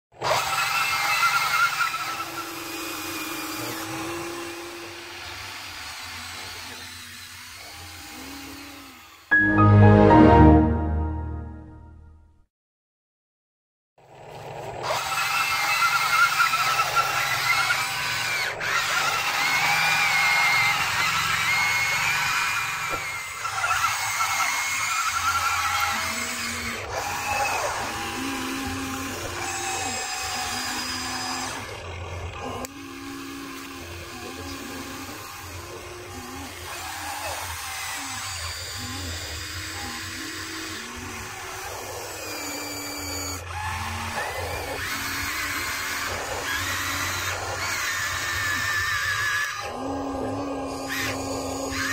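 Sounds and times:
electric motors whining: 0.2s - 9.3s, 14.2s - 51.9s
background music: 9.3s - 12.4s.

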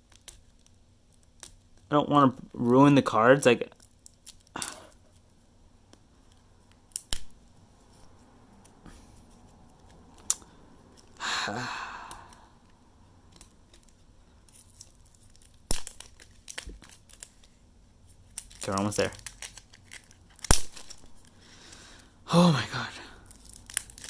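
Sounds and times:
plastic packaging tearing: 13.4s - 17.6s, 18.2s - 21.4s, 23.2s - 24.0s
plastic packaging clicks: 14.6s - 17.5s, 18.3s - 21.3s, 23.3s - 24.0s.

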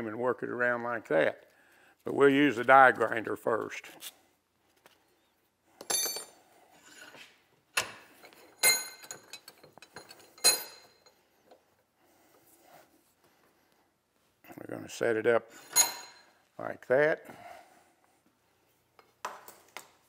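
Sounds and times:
metal clinks against a vise: 5.8s - 6.4s, 8.2s - 11.3s, 15.6s - 16.4s.

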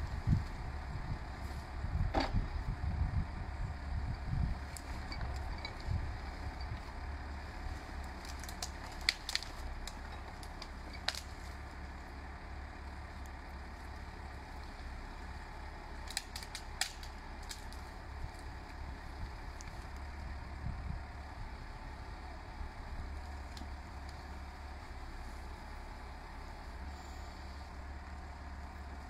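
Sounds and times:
tractor diesel engine running: 0.0s - 29.0s
branches cracking and snapping: 4.6s - 6.2s, 6.8s - 12.2s, 13.0s - 20.4s, 22.8s - 24.8s.

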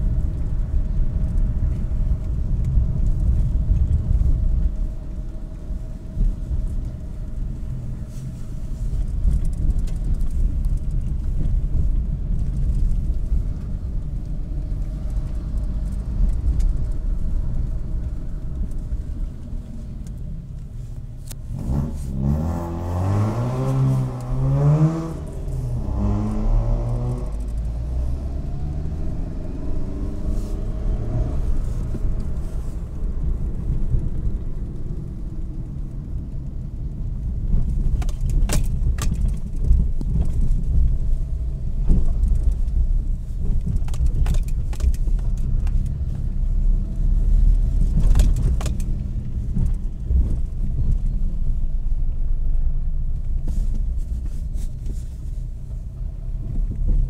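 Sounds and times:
car cabin road rumble: 0.0s - 57.0s
engine revving: 21.5s - 31.8s.

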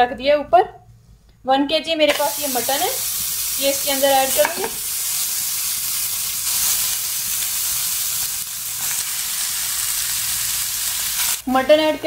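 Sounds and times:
pressure cooker hissing: 2.1s - 11.6s.

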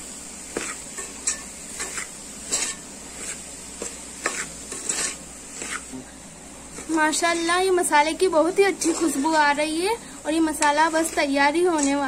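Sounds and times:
food sizzling: 0.0s - 12.0s
plastic spatula scraping a pot: 4.2s - 5.9s, 8.4s - 9.6s, 10.4s - 12.0s.

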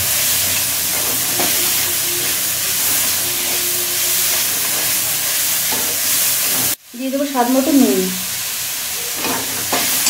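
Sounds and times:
steel spatula stirring: 0.0s - 6.8s
vegetables sizzling in hot oil: 0.0s - 10.0s.

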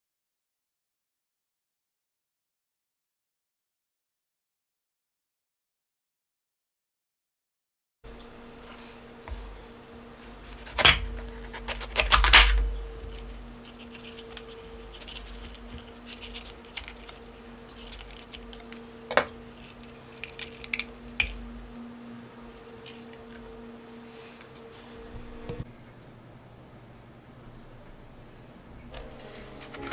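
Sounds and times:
small clicks and scrapes: 13.1s - 18.8s.

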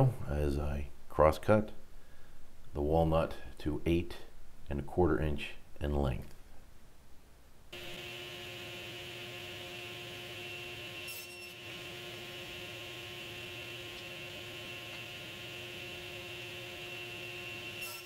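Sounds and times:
table saw humming: 7.8s - 18.0s.

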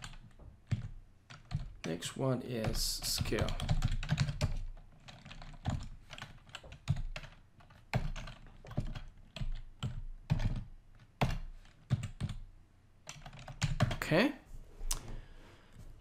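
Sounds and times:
typing on a computer keyboard: 0.0s - 2.0s, 2.6s - 12.4s, 13.0s - 14.0s.

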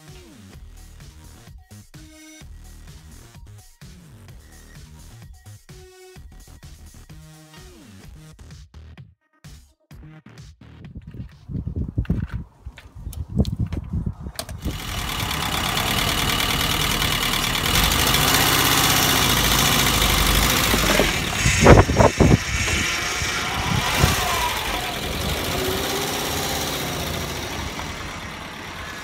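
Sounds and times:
engine knocks: 14.4s - 29.0s
engine idling: 14.6s - 29.0s.

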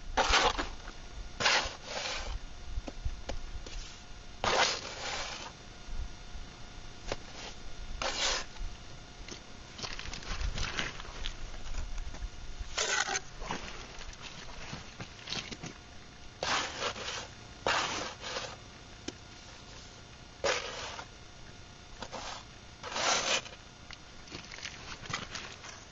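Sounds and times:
trowel scraping wet mortar: 0.2s - 0.8s, 1.4s - 2.4s, 3.7s - 5.5s, 7.1s - 8.5s, 12.7s - 15.6s, 16.4s - 18.6s, 20.4s - 21.1s, 22.0s - 23.6s.

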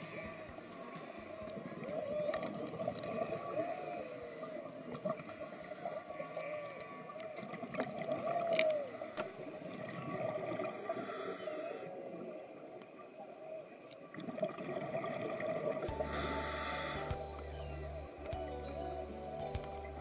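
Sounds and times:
whale song underwater: 0.0s - 19.1s
hissing bubbles from diver: 14.2s - 17.2s.

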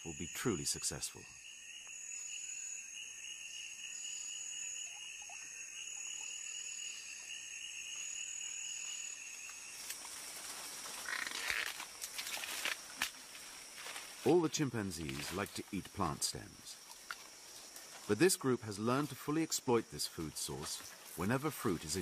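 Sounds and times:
high-pitched insect or frog chorus: 0.0s - 9.9s, 10.9s - 12.6s
rustling vegetation: 8.8s - 22.0s.

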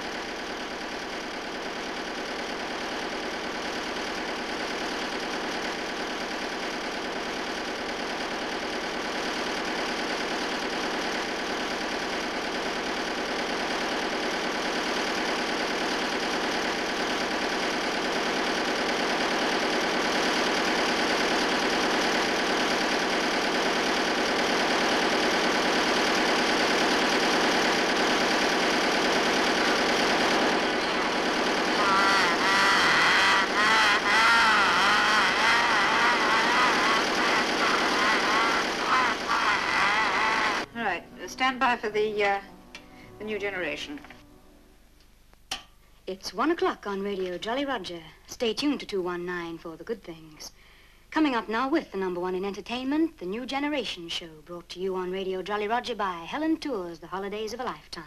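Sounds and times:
ship engine running: 0.0s - 44.1s.

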